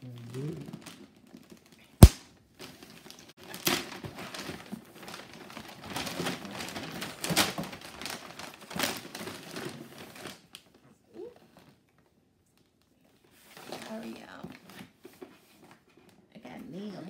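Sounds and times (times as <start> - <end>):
wrapping paper crinkling and tearing: 4.3 - 10.4.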